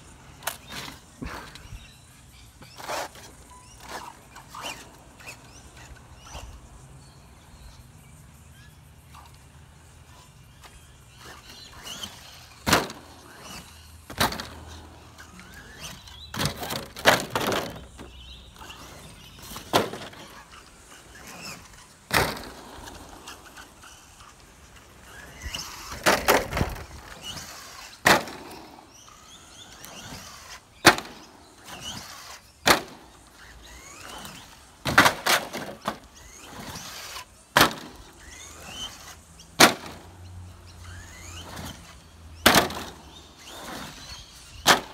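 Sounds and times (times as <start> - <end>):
toy truck clattering impacts: 11.5 - 18.2, 40.9 - 44.9.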